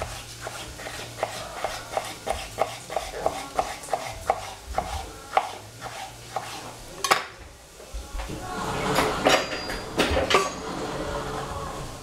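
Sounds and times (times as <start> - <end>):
knife chopping on cutting board: 0.0 - 6.6.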